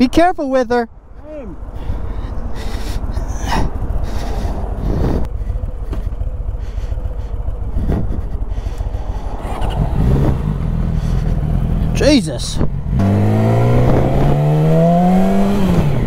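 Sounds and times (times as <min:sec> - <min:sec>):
motorcycle engine idling: 0:00.9 - 0:12.9.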